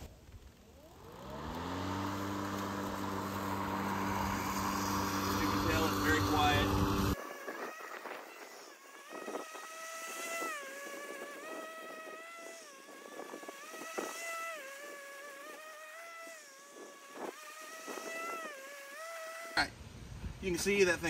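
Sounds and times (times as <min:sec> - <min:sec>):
high-pitched mower motor whine: 0:00.5 - 0:19.6.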